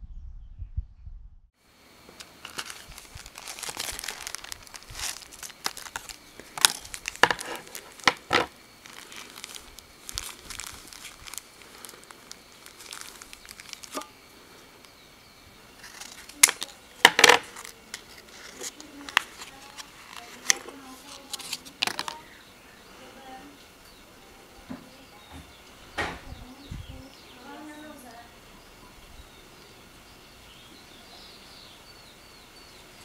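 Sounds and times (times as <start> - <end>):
plastic packaging crinkling: 2.1 - 14.1, 15.7 - 22.4.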